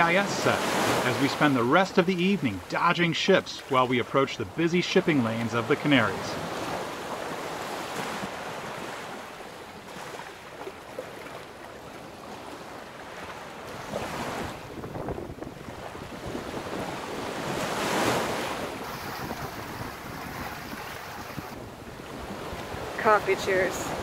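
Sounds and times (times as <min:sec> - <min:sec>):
water rushing past hull: 0:00.0 - 0:24.0
waves breaking: 0:00.0 - 0:24.0
wind buffeting microphone: 0:14.3 - 0:24.0.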